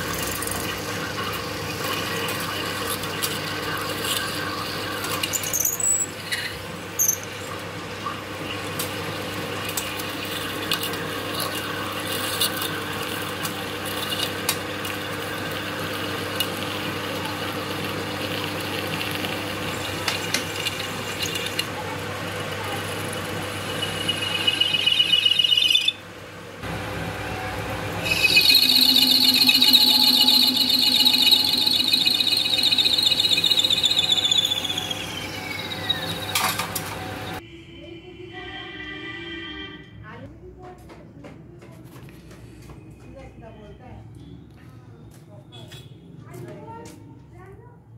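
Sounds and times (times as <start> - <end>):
metal lathe running: 9.2 - 25.9, 26.6 - 37.4
high-pitched cutting squeal: 23.5 - 26.0, 27.0 - 37.4.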